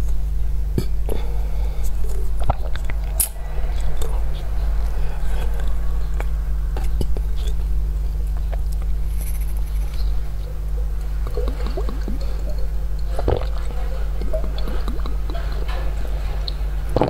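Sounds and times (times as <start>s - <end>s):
steady low hum: 0.0s - 17.0s
sipping and gulping drink: 11.0s - 17.0s.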